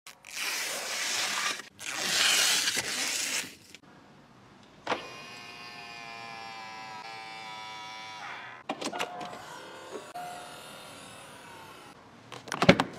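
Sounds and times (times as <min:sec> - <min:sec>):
plastic film peeling: 0:00.1 - 0:03.8
small electric motor whining: 0:05.0 - 0:12.0.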